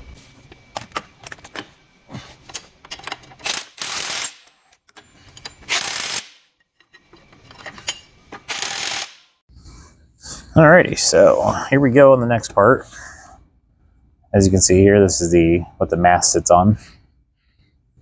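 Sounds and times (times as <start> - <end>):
ratchet wrench clicking: 3.0 - 4.6, 5.7 - 6.5, 8.5 - 9.3.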